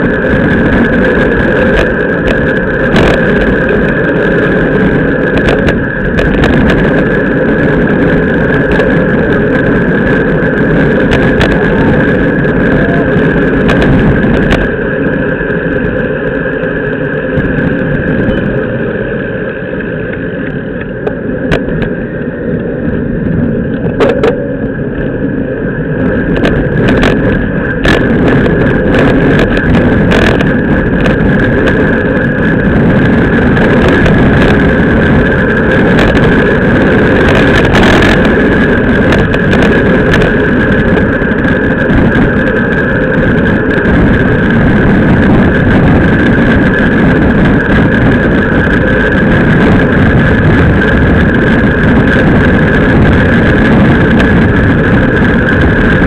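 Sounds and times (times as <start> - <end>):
bike tyres on asphalt: 0.0 - 56.0
wind rushing over camera: 0.0 - 56.0
bike knocks and rattles: 23.7 - 25.2.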